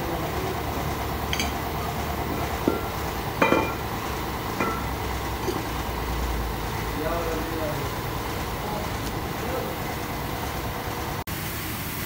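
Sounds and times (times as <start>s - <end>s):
metal drums clanking on concrete: 1.2s - 5.8s.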